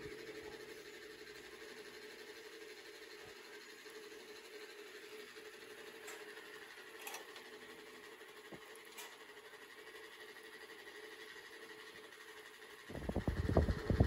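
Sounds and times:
faint hum: 12.9 - 14.0.

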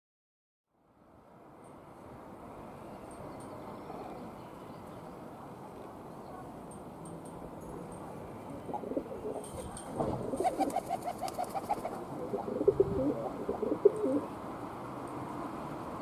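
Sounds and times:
pigeon cooing: 8.5 - 14.3.

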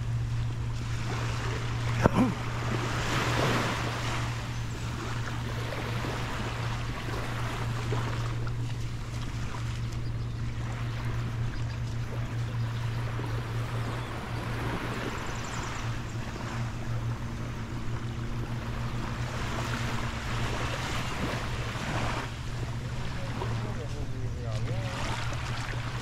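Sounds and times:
waves washing on sandy beach: 0.0 - 10.0, 18.4 - 26.0
steady low hum: 0.0 - 26.0.

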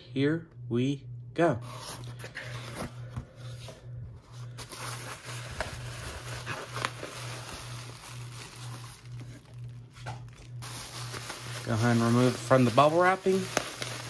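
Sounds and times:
pulsing low hum: 0.0 - 14.0
bubble wrap crinkling: 4.4 - 14.0.

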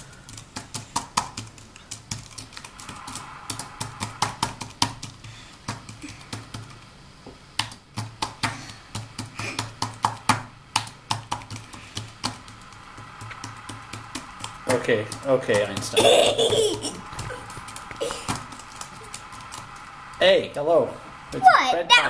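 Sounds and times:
computer keyboard keys clicking: 0.1 - 2.9, 7.6 - 15.9.

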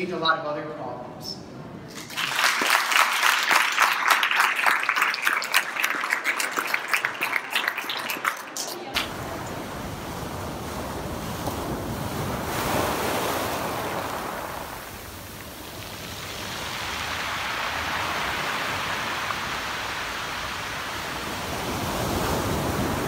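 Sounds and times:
waves washing on shingle beach: 9.0 - 23.0.

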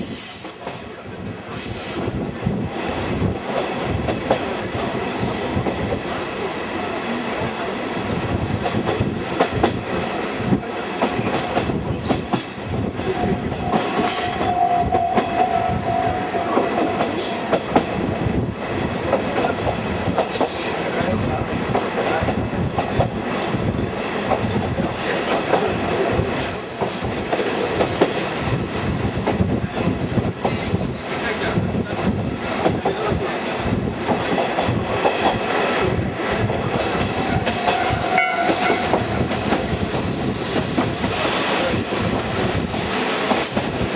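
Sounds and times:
railcar rumble: 0.0 - 43.9
train wheels clicking over rail joints: 18.8 - 21.1, 34.0 - 43.9.

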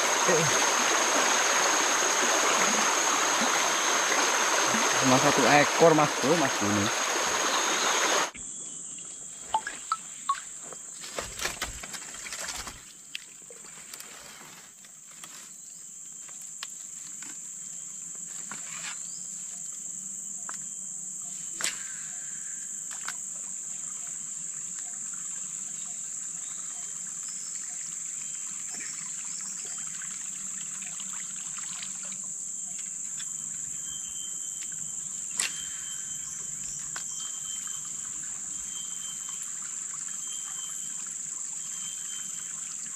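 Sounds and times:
insects droning: 0.0 - 42.9.

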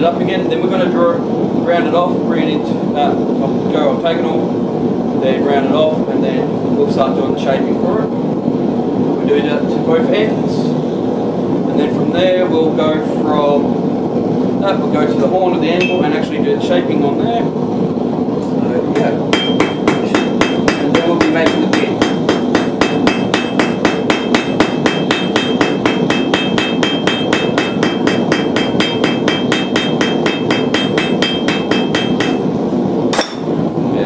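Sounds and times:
hammer striking steel on anvil: 15.8 - 16.1, 19.0 - 32.5, 33.1 - 33.6.

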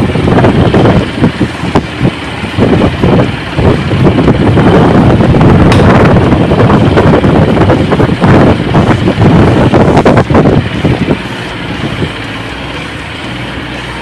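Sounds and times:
fan blades whooshing: 0.0 - 14.0
sharp click: 5.7 - 6.1.

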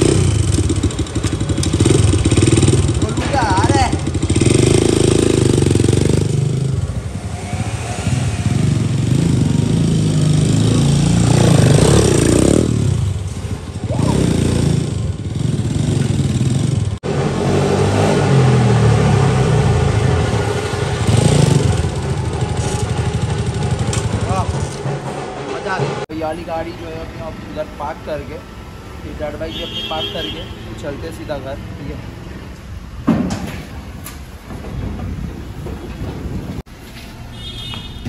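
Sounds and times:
dirt bike engine revving: 0.0 - 13.2, 13.8 - 24.9.

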